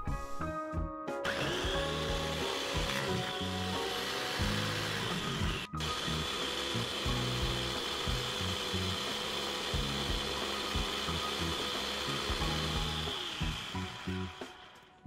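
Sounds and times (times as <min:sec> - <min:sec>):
food chopper motor whining: 0:01.2 - 0:15.0.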